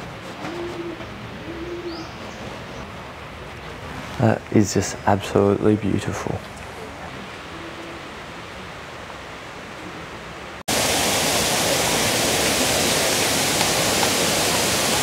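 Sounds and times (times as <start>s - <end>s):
faint steady hiss: 3.1s - 15.0s
waterfall rushing: 6.8s - 15.0s.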